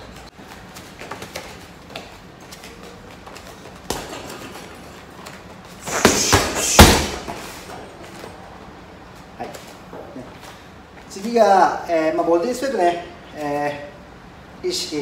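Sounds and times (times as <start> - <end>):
gloves punching heavy bag: 5.8 - 7.4.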